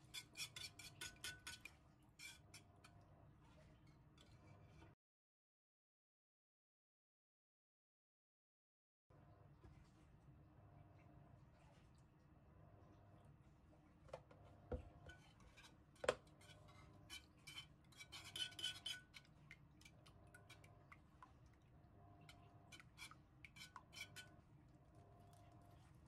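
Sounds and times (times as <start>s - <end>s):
whisk tapping against dish: 0.0s - 2.4s, 15.1s - 20.7s.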